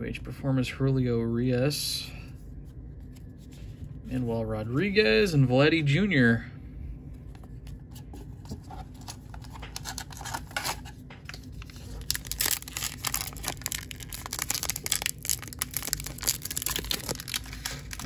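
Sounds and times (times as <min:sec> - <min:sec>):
wrapper crinkling and tearing: 0:09.0 - 0:18.0.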